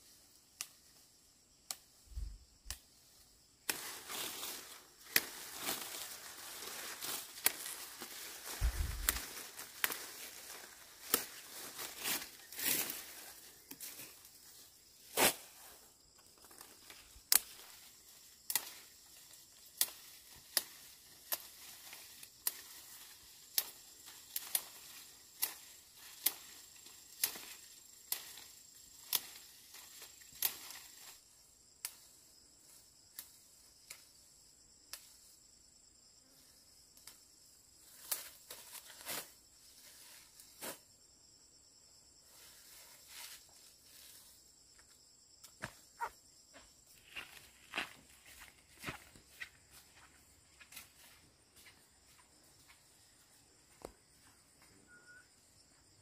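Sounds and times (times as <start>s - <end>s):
faint insect drone: 0.0s - 56.0s
sharp clicks or snaps: 2.6s - 2.8s.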